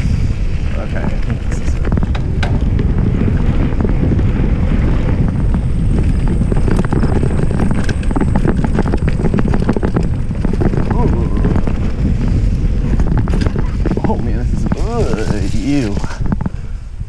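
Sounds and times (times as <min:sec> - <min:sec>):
bike clicks and rattles: 0:00.0 - 0:17.0
wind buffeting microphone: 0:00.0 - 0:17.0.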